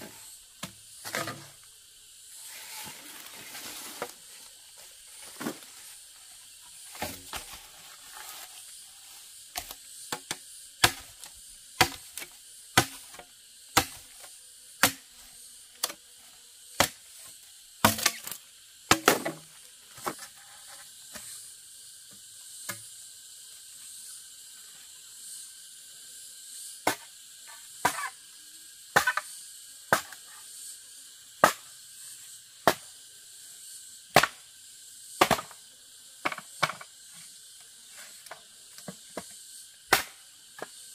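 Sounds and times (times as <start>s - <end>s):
high insect drone: 0.0s - 40.9s
machete chopping bamboo: 9.5s - 15.2s, 16.8s - 17.2s, 17.8s - 20.2s, 26.8s - 27.1s, 27.8s - 28.2s, 28.9s - 29.3s, 29.9s - 30.2s, 31.4s - 31.8s, 32.6s - 32.9s, 34.1s - 34.4s, 35.2s - 35.6s, 38.2s - 40.7s.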